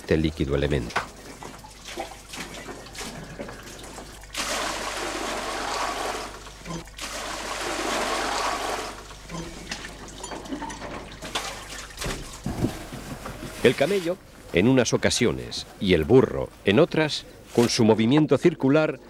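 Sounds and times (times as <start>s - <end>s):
bucket and rope knocking: 0.9s - 13.8s
water splashing into stone trough: 3.8s - 10.2s, 11.1s - 14.1s.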